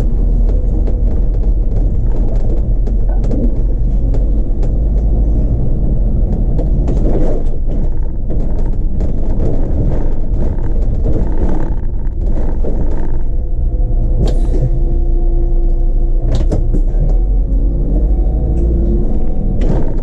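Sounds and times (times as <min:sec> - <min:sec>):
light rattles and clicks: 0:00.0 - 0:15.0
bus engine rumble: 0:00.0 - 0:20.0.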